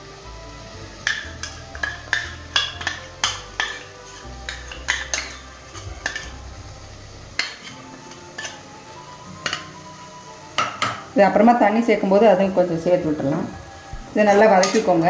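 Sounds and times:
steel spoon clinking on a pot: 1.0s - 6.4s, 7.4s - 8.6s, 10.6s - 11.0s, 14.3s - 15.0s.

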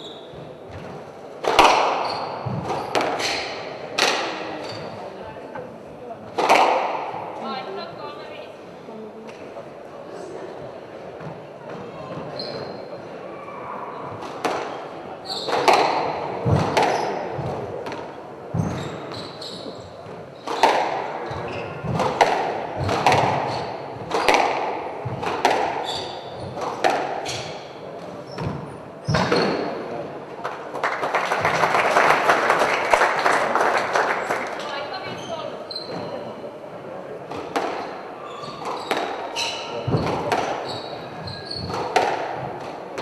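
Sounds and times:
shoes squeaking on court: 0.0s - 1.1s, 1.9s - 3.7s, 4.5s - 5.3s, 12.0s - 13.0s, 14.7s - 15.9s, 16.8s - 17.5s, 18.5s - 22.1s, 22.8s - 29.8s, 34.5s - 36.5s, 37.8s - 42.6s
squash ball cracking off rackets: 0.7s - 4.6s, 6.3s - 7.3s, 15.4s - 18.8s, 20.4s - 29.8s, 37.3s - 43.0s
applause: 30.7s - 35.0s.

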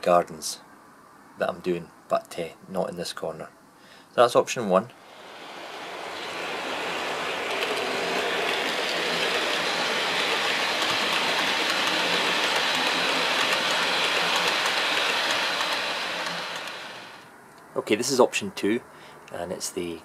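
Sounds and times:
model train rolling on track: 4.9s - 17.3s.

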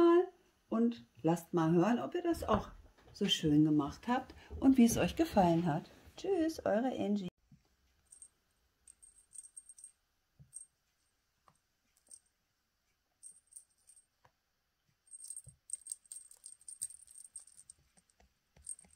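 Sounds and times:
small jingle bell jingling: 8.1s - 10.7s, 12.0s - 12.3s, 13.2s - 14.1s, 15.1s - 18.0s, 18.6s - 18.9s.

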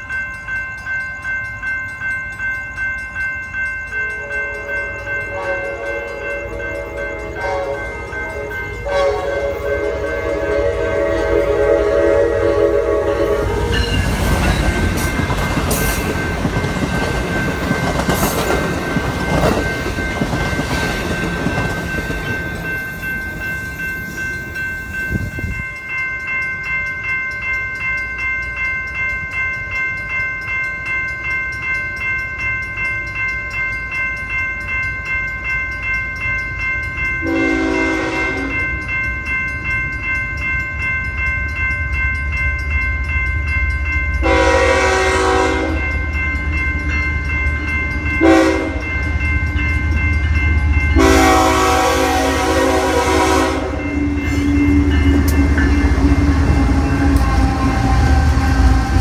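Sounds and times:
high pulsing ringing: 0.0s - 59.0s
train wheels rolling and rail clatter: 0.0s - 59.0s
train horn: 4.2s - 14.1s, 37.2s - 38.7s, 44.2s - 46.0s, 48.2s - 48.9s, 51.0s - 58.7s.

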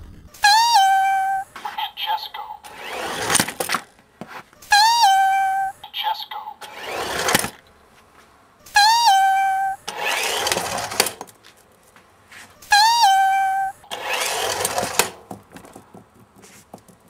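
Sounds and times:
buzzy electronic beep: 12.7s - 13.9s.

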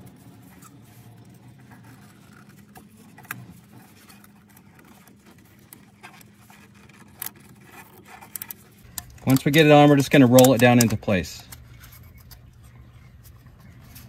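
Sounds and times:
gloved hands handling rubber ring: 0.0s - 14.0s
steady low hum: 0.0s - 14.0s
small clicks: 7.0s - 13.2s.

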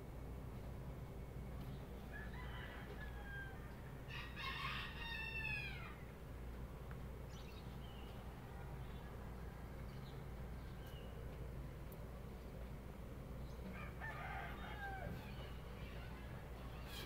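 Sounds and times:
rooster crowing: 2.1s - 6.0s, 13.7s - 16.4s.

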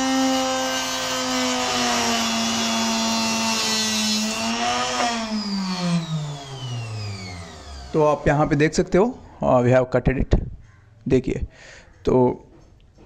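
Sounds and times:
electric cutting machine whine: 0.0s - 9.0s.

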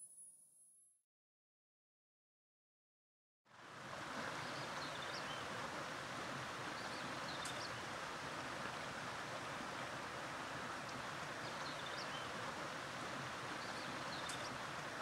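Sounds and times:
river water rushing: 3.5s - 15.0s.

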